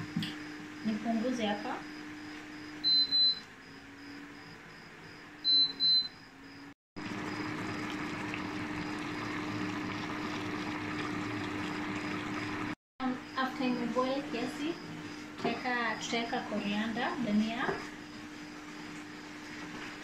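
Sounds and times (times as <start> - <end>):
cooktop touch control beeps: 2.8 - 3.5, 5.4 - 6.2
stew simmering and bubbling: 7.0 - 12.8.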